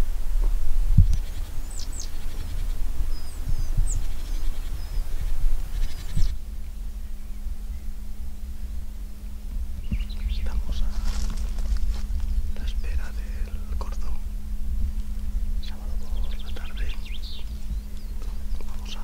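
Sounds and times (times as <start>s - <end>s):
wind rumble on microphone: 0.0s - 19.0s
bird chirps and calls: 1.1s - 6.4s, 9.8s - 14.2s, 15.6s - 19.0s.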